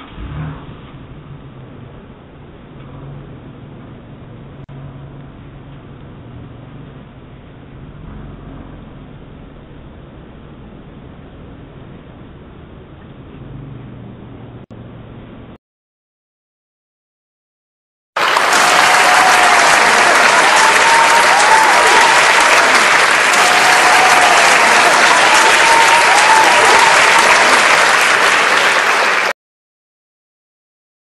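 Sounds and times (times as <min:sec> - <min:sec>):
large audience applauding: 0:18.2 - 0:29.4.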